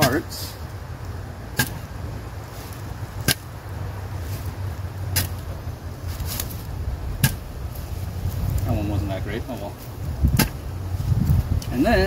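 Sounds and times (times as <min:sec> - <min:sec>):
steady low hum: 0:00.0 - 0:12.0
shovel striking potatoes on ground: 0:01.5 - 0:01.9, 0:02.6 - 0:03.5, 0:04.2 - 0:07.5, 0:10.2 - 0:10.6.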